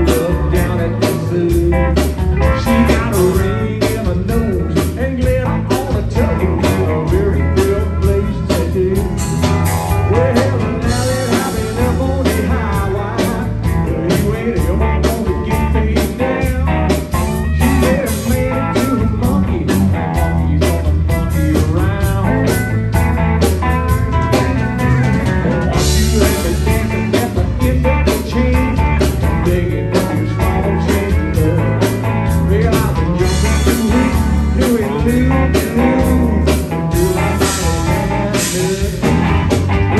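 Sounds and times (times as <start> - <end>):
live country band playing: 0.0 - 39.9.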